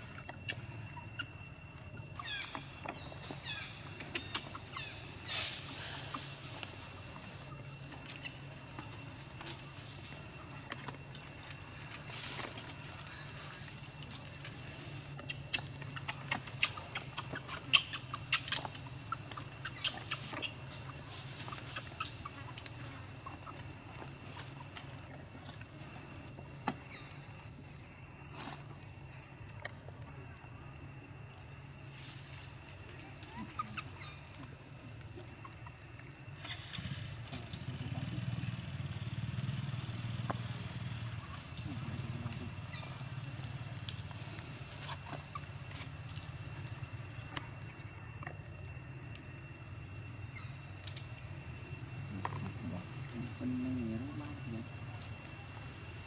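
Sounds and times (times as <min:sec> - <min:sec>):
low steady hum: 0:00.0 - 0:56.0
small engine running: 0:36.4 - 0:44.8.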